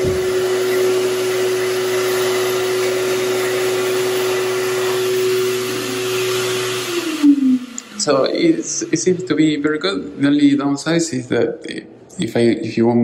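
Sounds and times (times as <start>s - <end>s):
motor whine: 0.0s - 10.6s
hand dryer blowing air: 0.0s - 11.2s.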